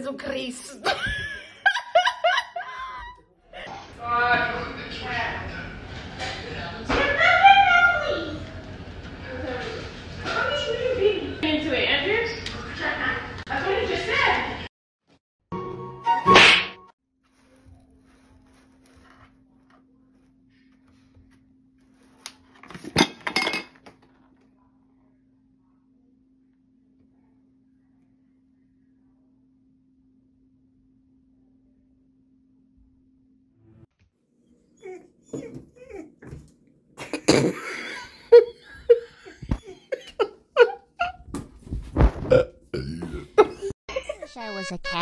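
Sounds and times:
person laughing: 0.8s - 3.8s, 37.0s - 41.3s, 42.3s - 44.4s.

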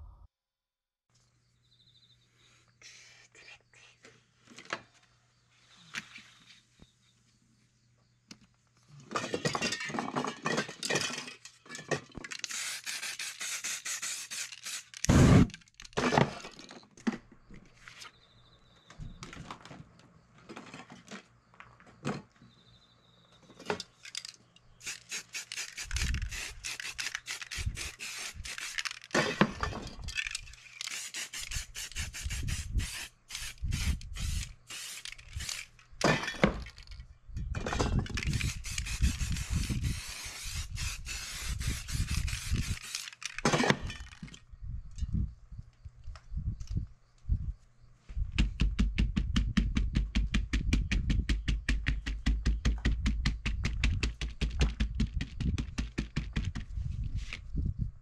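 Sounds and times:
spray paint can hissing: 12.4s - 15.5s, 24.8s - 29.1s, 30.6s - 35.7s, 38.3s - 43.3s.

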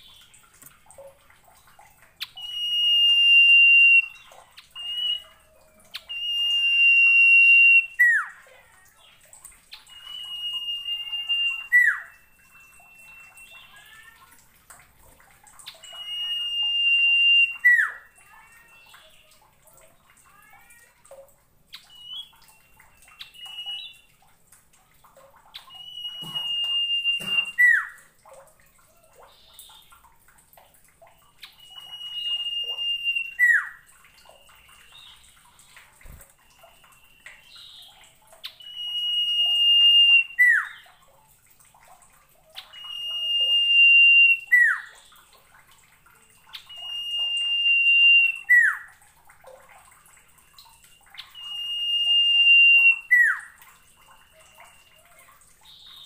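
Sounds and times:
soft bird twittering: 9.0s - 14.1s, 25.6s - 28.0s, 31.2s - 41.0s
bird whistle with falling note: 25.7s - 27.9s, 31.6s - 33.7s, 51.3s - 53.4s.

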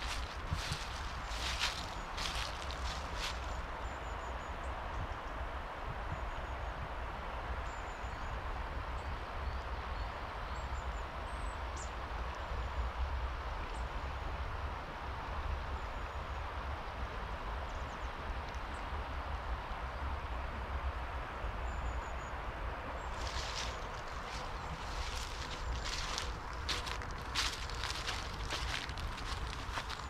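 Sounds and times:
footsteps on forest path: 0.0s - 3.7s, 23.1s - 30.0s
steady rushing background noise: 0.0s - 3.9s, 23.0s - 30.0s.

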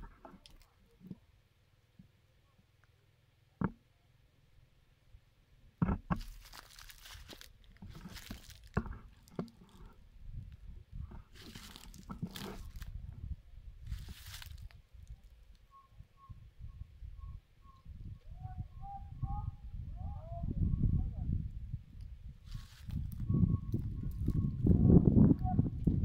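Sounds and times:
footsteps crunching through dry leaves: 6.2s - 8.8s, 11.4s - 12.9s, 13.9s - 14.8s, 22.4s - 23.2s.

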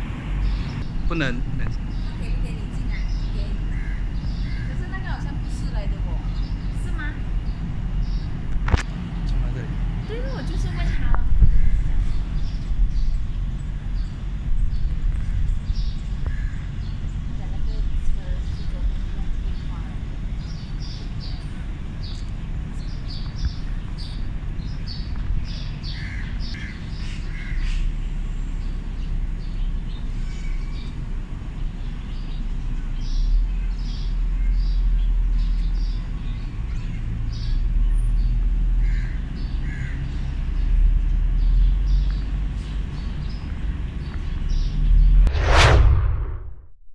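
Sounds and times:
steady low rumble: 0.0s - 27.3s, 43.0s - 46.8s.

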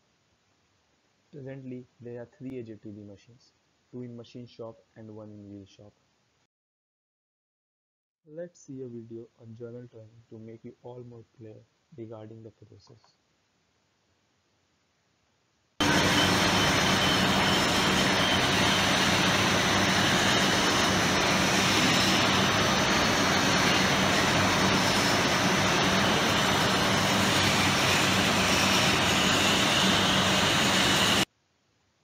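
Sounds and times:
turning machine mechanical din: 15.8s - 31.2s.

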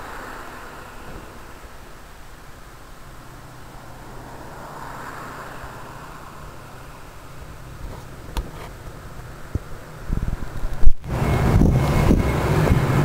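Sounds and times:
steady hiss: 0.0s - 11.4s
diesel locomotive engine drone: 0.0s - 13.0s.

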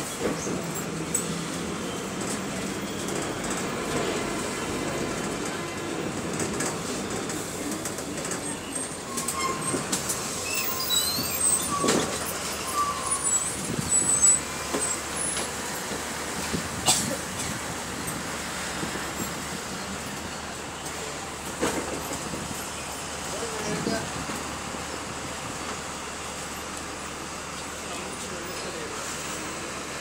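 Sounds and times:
bus engines running: 0.0s - 30.0s
short high-pitched squeaks: 8.8s - 15.4s.

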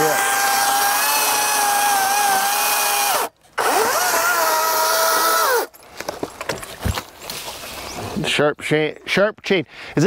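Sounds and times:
electric chainsaw cutting wood: 0.0s - 5.7s.

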